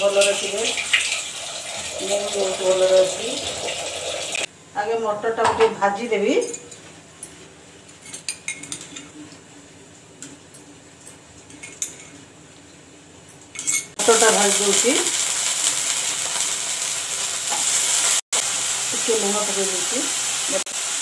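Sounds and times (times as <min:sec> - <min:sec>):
peas sizzling in hot oil: 0:00.0 - 0:04.5, 0:14.0 - 0:21.0.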